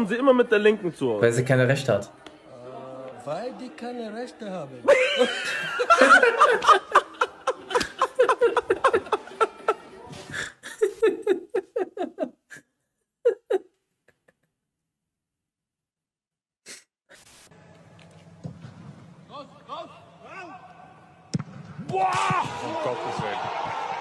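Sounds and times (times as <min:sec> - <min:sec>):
man laughing hard: 0:04.9 - 0:09.8, 0:10.6 - 0:12.4, 0:13.3 - 0:13.7.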